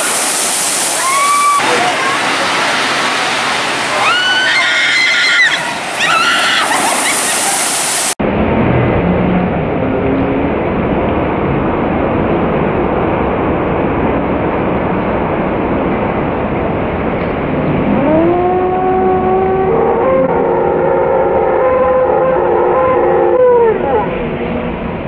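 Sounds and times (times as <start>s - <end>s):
water rushing down a chute: 0.0s - 8.9s
riders yelling: 0.9s - 8.1s.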